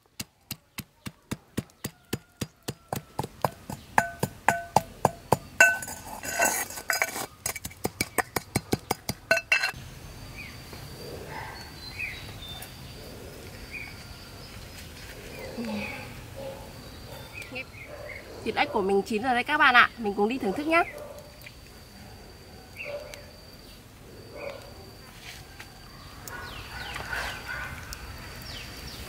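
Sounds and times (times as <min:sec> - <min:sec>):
pestle pounding metal mortar: 0:00.2 - 0:09.8
birds chirping: 0:08.1 - 0:19.0, 0:22.7 - 0:24.7
insects buzzing: 0:09.2 - 0:29.0.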